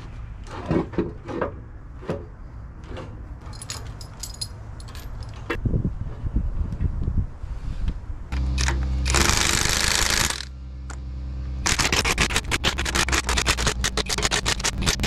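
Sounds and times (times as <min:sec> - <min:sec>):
steady machine hum: 0:08.3 - 0:13.2.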